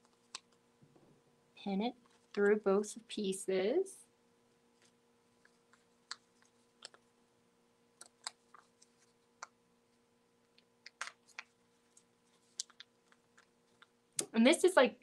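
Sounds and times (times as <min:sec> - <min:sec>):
pins clicking through felt: 0:05.4 - 0:07.1
paper rustling: 0:08.0 - 0:09.4.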